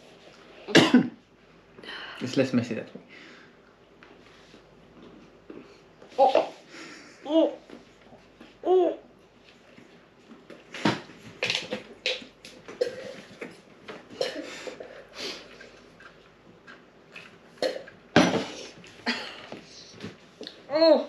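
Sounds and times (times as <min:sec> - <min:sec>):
person coughing and gagging: 0:00.7 - 0:01.2, 0:14.2 - 0:14.7, 0:17.6 - 0:19.6.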